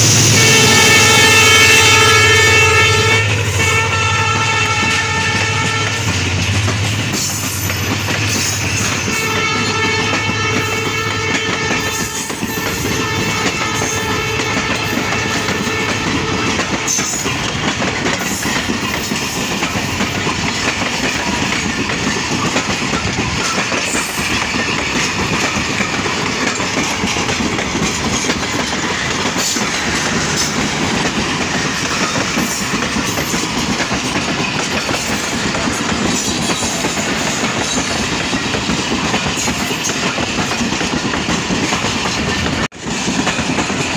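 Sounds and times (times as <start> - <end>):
train rolling rumble: 0.0 - 43.9
train wheels clattering over rail joints: 3.0 - 43.9.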